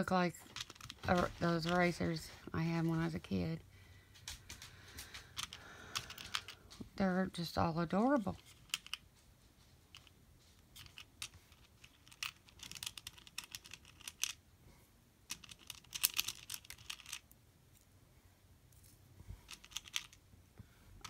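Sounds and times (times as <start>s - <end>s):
plastic beads clicking: 0.5s - 1.0s, 5.0s - 6.6s, 10.8s - 14.4s, 15.3s - 17.4s, 19.5s - 20.2s.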